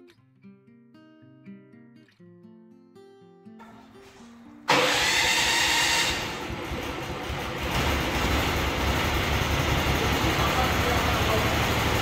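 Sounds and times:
sawmill gas engine running: 0:04.7 - 0:12.0.

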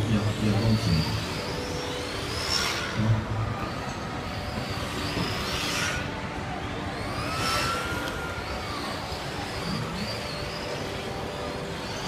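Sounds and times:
model car motors whining: 0:00.0 - 0:12.0.

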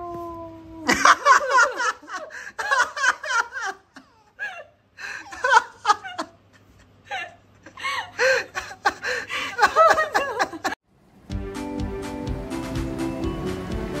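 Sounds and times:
people giggling: 0:00.9 - 0:04.2, 0:08.2 - 0:10.8.

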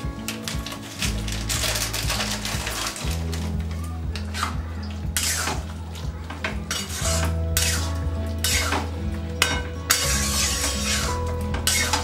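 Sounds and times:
spatula scraping metal pan: 0:05.2 - 0:05.7, 0:06.7 - 0:12.0.

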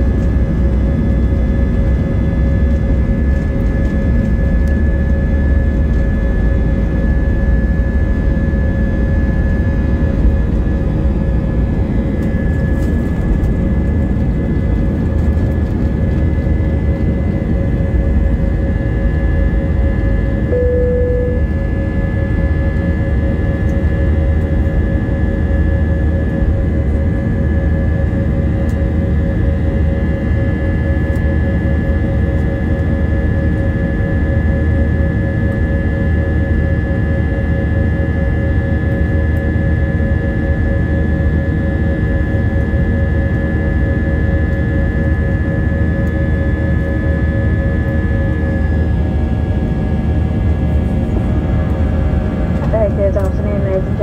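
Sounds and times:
aircraft cabin engine rumble: 0:00.0 - 0:54.0
steady engine whine: 0:00.0 - 0:54.0
high whining tones: 0:20.5 - 0:21.9.

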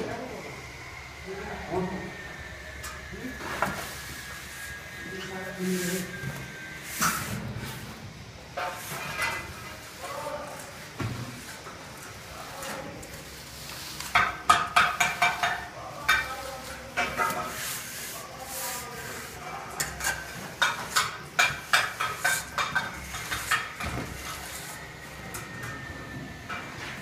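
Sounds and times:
metal straightedge scraping plaster: 0:12.4 - 0:25.4.

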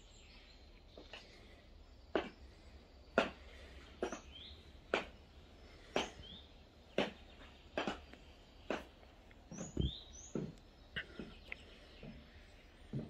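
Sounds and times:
high-heeled boots on flagstone: 0:02.1 - 0:02.5, 0:03.2 - 0:13.0.

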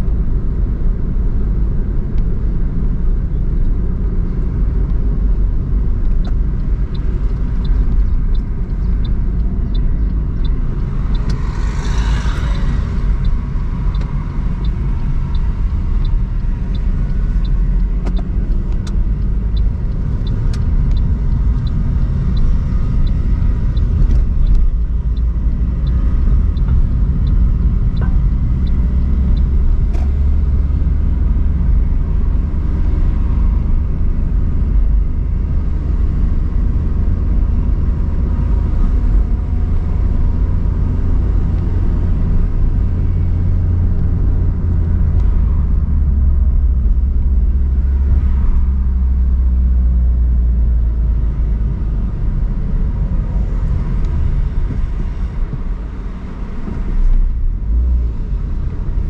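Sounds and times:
car engine and road rumble: 0:00.0 - 0:59.0
regular light ticking: 0:06.1 - 0:11.6, 0:12.6 - 0:30.8.

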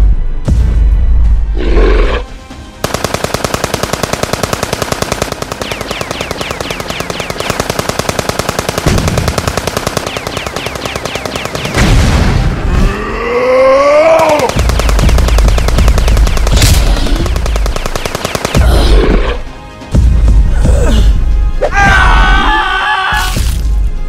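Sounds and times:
cartoon machine-gun fire: 0:02.8 - 0:12.6, 0:14.1 - 0:19.3
monster cry rising and falling: 0:12.7 - 0:14.5.

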